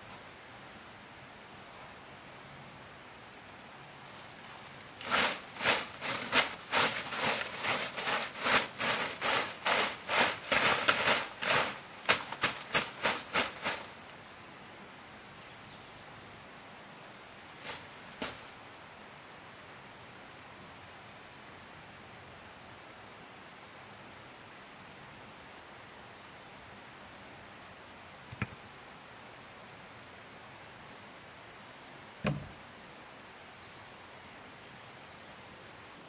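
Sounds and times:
broom sweeping dirt ground: 0.0 - 0.8, 1.6 - 2.5, 4.0 - 14.4, 17.3 - 18.6.

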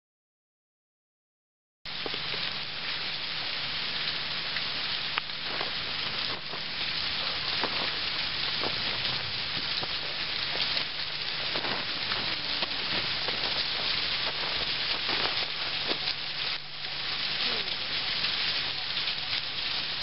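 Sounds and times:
waterfall hissing: 1.9 - 20.0
ice crackling: 4.0 - 20.0.

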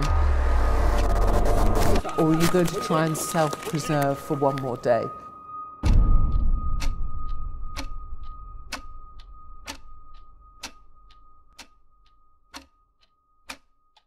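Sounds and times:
clock ticking: 2.0 - 5.2, 5.9 - 14.0
low rumble: 5.8 - 11.5.

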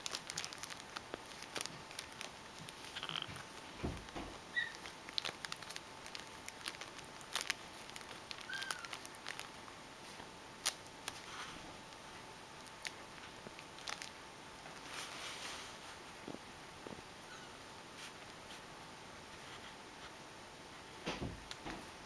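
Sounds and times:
plastic bag crinkling: 0.0 - 16.4.

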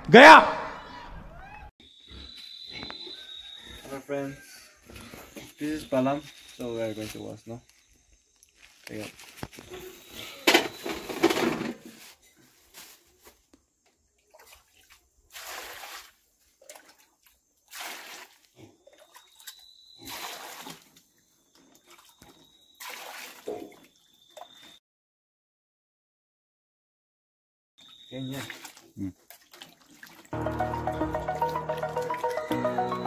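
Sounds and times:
plums clattering into steel basin: 10.5 - 11.9
water splashing poured: 14.3 - 19.4, 20.0 - 20.9, 22.8 - 23.8, 28.3 - 33.0.

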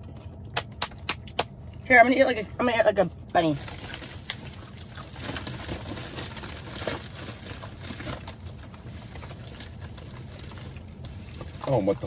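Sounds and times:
packaging rustling: 3.6 - 11.6.

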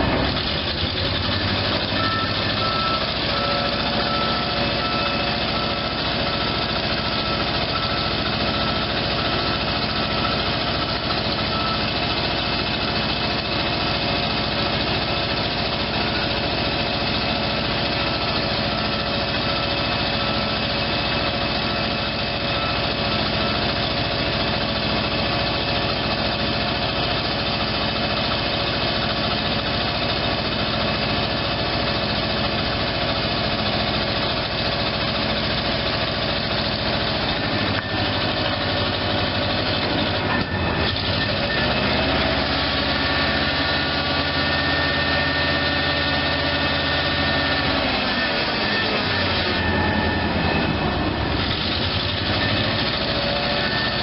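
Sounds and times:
truck engine running: 0.0 - 54.0
hydraulic whine: 34.9 - 54.0.

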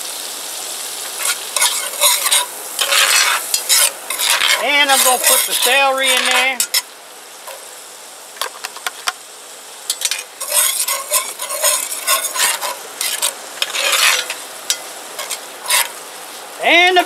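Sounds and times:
vegetables sizzling in butter: 0.0 - 17.0
metal spoon scraping pot: 1.2 - 6.9, 9.9 - 16.0.

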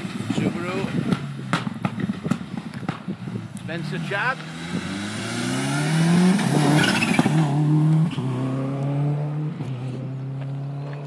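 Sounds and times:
rally car engine accelerating: 3.8 - 11.0.

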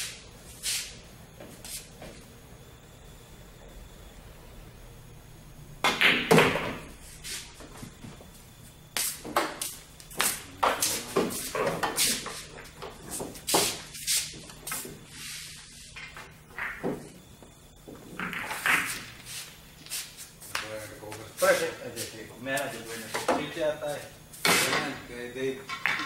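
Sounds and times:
cue striking billiard ball: 5.8 - 6.9, 16.0 - 17.1
billiard balls clacking: 5.8 - 7.0, 15.9 - 19.2, 24.4 - 26.0.

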